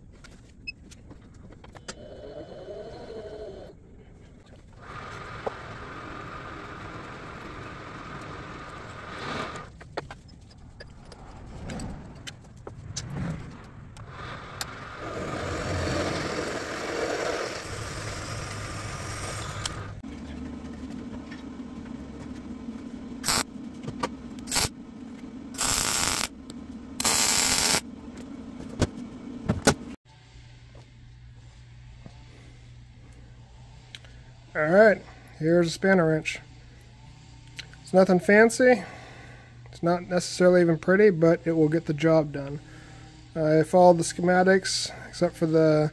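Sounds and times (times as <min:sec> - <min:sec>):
steady machine hum: 0:00.4 - 0:45.9
mig welding bursts: 0:23.2 - 0:23.5, 0:24.4 - 0:24.7, 0:25.6 - 0:26.3, 0:27.0 - 0:27.8.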